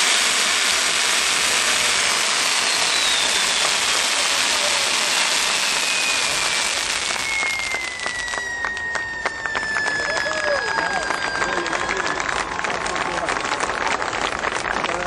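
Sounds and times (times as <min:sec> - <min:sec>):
firework fountains hissing: 0:00.0 - 0:14.5
thin descending whistle: 0:01.6 - 0:13.2.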